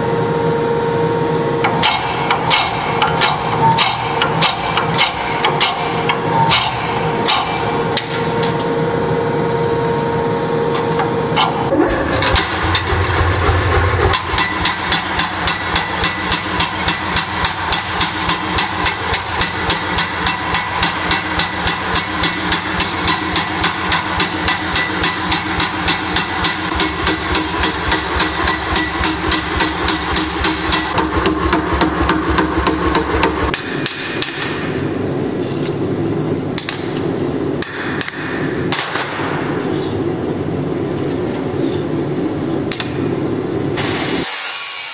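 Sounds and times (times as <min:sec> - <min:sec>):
forging press humming: 0:00.0 - 0:43.8
power hammer pounding hot metal: 0:01.6 - 0:08.2, 0:11.4 - 0:35.0, 0:37.6 - 0:39.7
hand hammer striking anvil: 0:01.7 - 0:08.2, 0:14.1 - 0:34.6.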